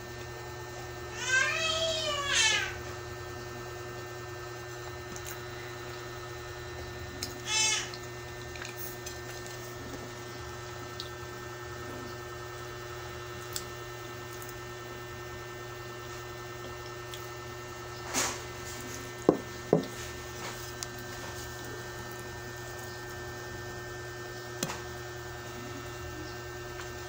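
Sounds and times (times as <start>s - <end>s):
steady hum: 0.0s - 27.0s
eating and dish handling: 18.0s - 23.3s.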